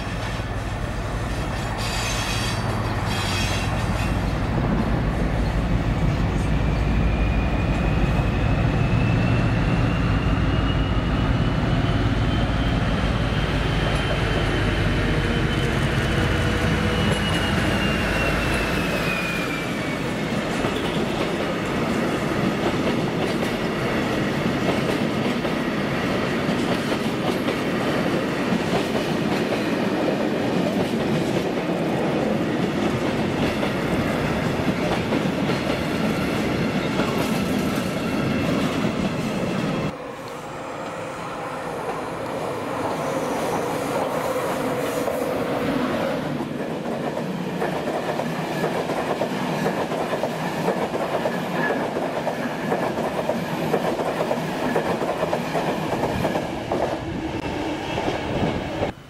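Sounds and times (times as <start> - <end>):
diesel locomotive engine rumble: 0.0 - 25.5.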